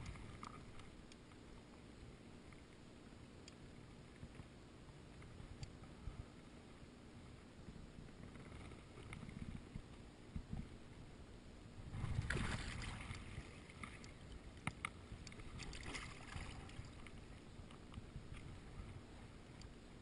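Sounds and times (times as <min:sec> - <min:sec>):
water lapping against float tube: 0:11.9 - 0:19.8.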